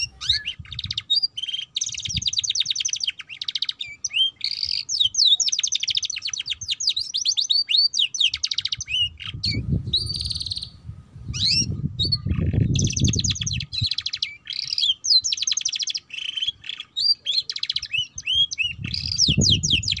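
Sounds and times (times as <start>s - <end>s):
canary singing trills: 0.0s - 20.0s.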